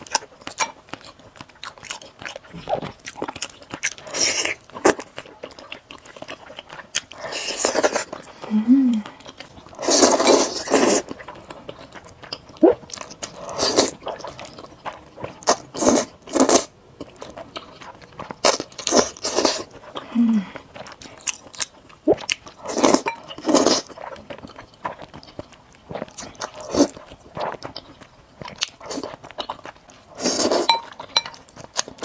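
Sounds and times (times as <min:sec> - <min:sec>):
chewing: 0:00.0 - 0:32.0
slurping noodles: 0:09.7 - 0:11.1, 0:15.4 - 0:16.7, 0:30.2 - 0:30.7.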